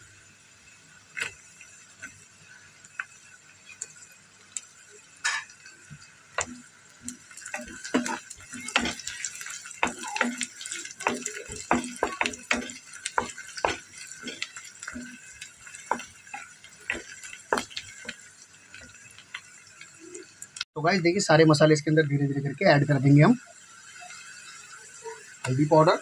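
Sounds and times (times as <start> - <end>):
hot oil sizzling: 0.0 - 26.0
wooden spatula scraping a wok: 7.4 - 18.3.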